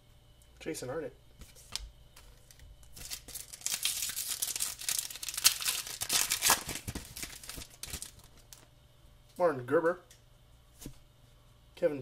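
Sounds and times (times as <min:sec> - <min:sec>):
foil wrapper crinkling and tearing: 0:02.5 - 0:08.7.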